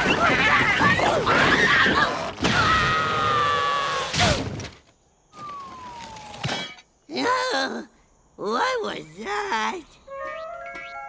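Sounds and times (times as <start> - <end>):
whistle gliding down: 10.1 - 11.0.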